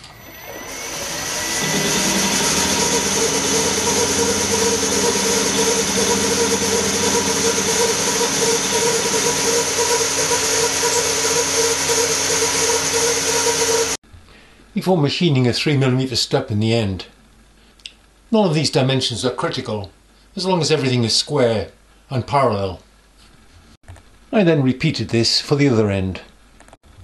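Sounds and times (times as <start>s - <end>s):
milling machine whining: 0.0s - 14.0s.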